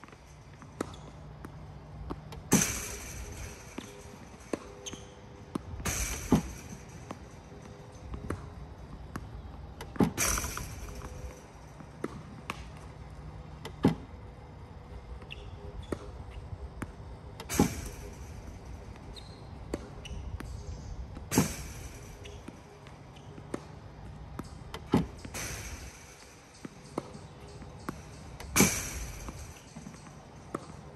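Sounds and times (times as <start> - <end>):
tennis balls bouncing and struck: 0.0 - 30.9.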